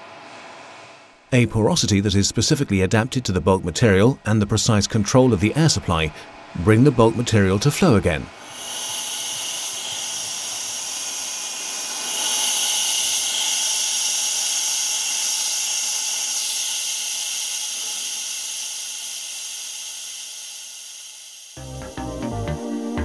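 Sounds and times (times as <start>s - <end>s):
steady hiss of air: 3.9s - 21.6s.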